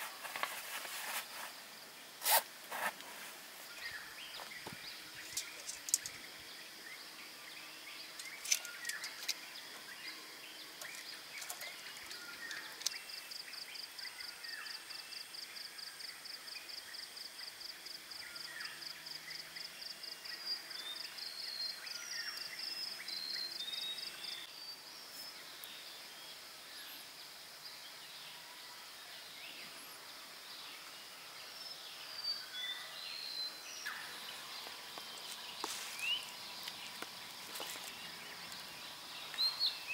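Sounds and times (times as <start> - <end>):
birds chirping: 0.0 - 15.1, 29.2 - 39.9
high insect hum: 0.0 - 39.9.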